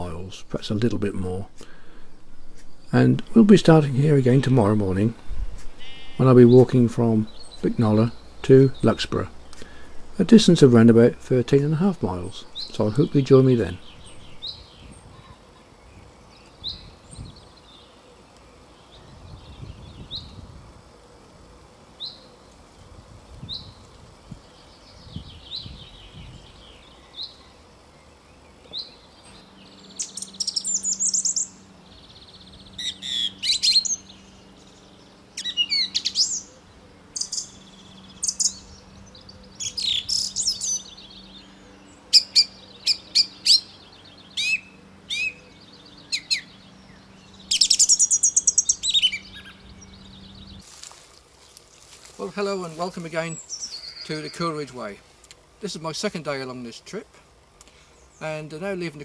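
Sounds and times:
songbird single chirps: 0:24.4 - 0:52.0.

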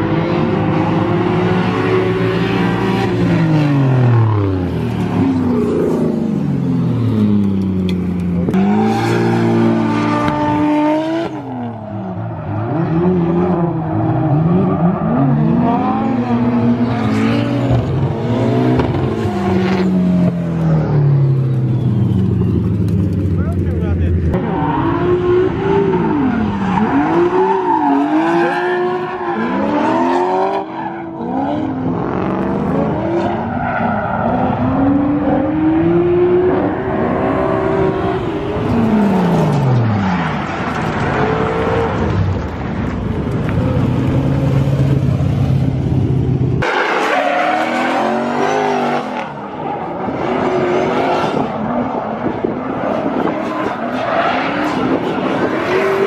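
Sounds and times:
car engines revving hard: 0:00.0 - 0:56.0
tire squeal and skidding: 0:11.8 - 0:15.8, 0:24.4 - 0:31.7, 0:32.9 - 0:34.9, 0:46.6 - 0:56.0.

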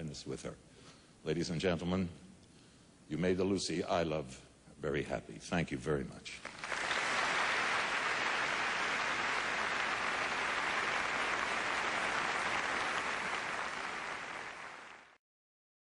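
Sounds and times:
audience applauding: 0:06.4 - 0:15.2.

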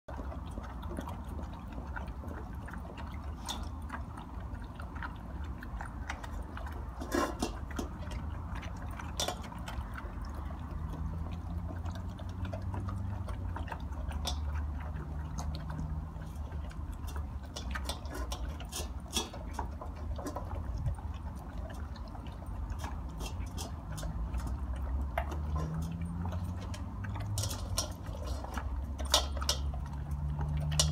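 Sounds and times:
dogs crunching kibble: 0:00.1 - 0:30.9
kibble clinking on metal bowls: 0:05.0 - 0:20.7, 0:22.7 - 0:30.9.

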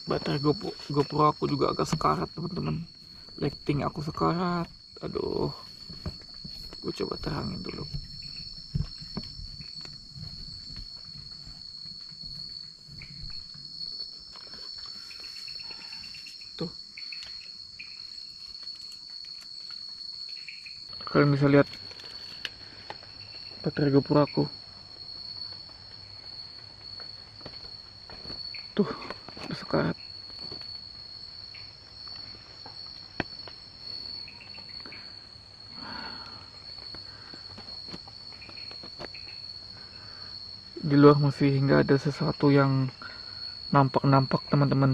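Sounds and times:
crickets trilling: 0:00.0 - 0:44.9
night insects chirring: 0:00.0 - 0:44.9
handling rustles and knocks: 0:05.6 - 0:06.8.

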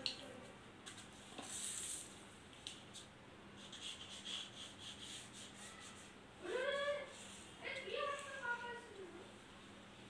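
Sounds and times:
glue stick rubbing on cardboard: 0:03.6 - 0:06.1.

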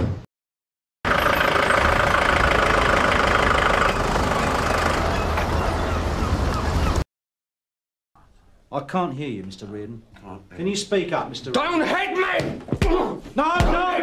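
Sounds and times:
car engine running: 0:01.1 - 0:06.0.

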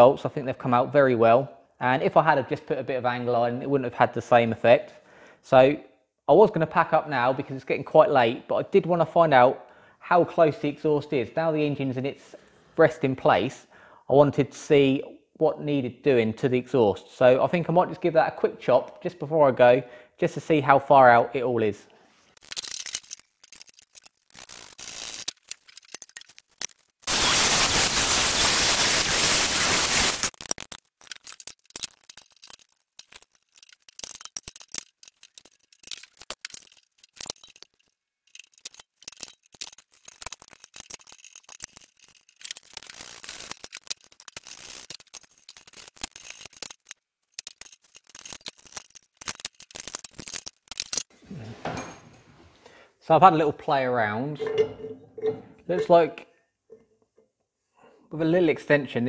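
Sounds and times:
pipe cutting noise: 0:27.0 - 0:30.4
metal pipes clinking: 0:30.5 - 0:51.1, 0:54.3 - 0:56.9.

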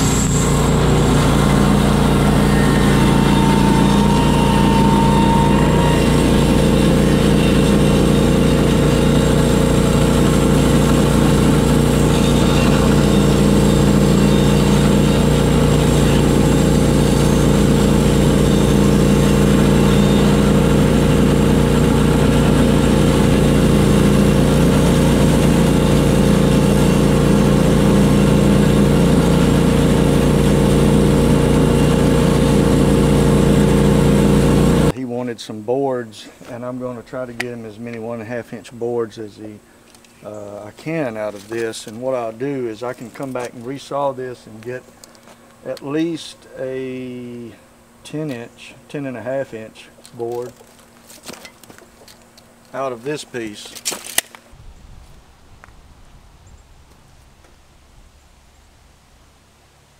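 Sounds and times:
bandsaw mill sawing log: 0:00.0 - 0:35.0, 0:40.2 - 0:44.9, 0:45.7 - 0:51.4, 0:52.7 - 0:53.8.

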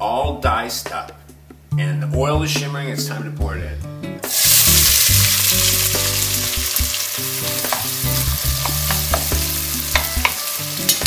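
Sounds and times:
onion sizzling in oil: 0:04.2 - 0:11.0
spoon knocking on pot: 0:07.6 - 0:08.0, 0:08.6 - 0:10.4.

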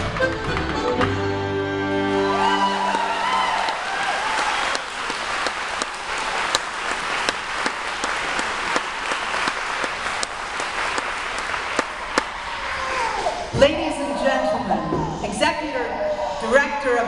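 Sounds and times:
audience applause: 0:02.1 - 0:13.2
nearby person clapping sharply: 0:02.8 - 0:12.4.

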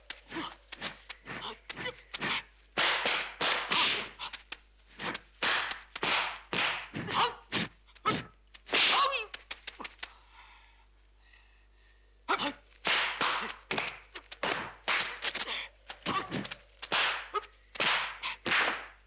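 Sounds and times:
whooshing swings: 0:00.0 - 0:10.1
punch impacts: 0:00.8 - 0:04.3, 0:08.6 - 0:09.2.

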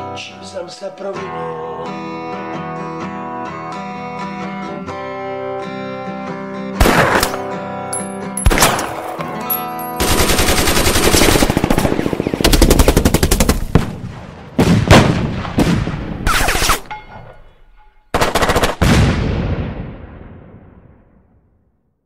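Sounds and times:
machine-gun fire: 0:06.8 - 0:07.5, 0:08.4 - 0:09.1, 0:10.0 - 0:16.8, 0:18.1 - 0:20.7
single gunshots: 0:06.8 - 0:07.6, 0:08.5 - 0:09.2, 0:13.7 - 0:16.8.

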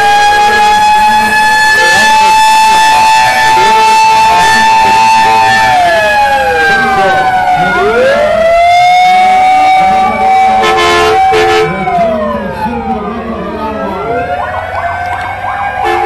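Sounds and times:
fire truck sirens wailing: 0:00.0 - 0:16.0
horn blasts: 0:01.8 - 0:05.8, 0:10.5 - 0:11.8, 0:15.8 - 0:16.0.

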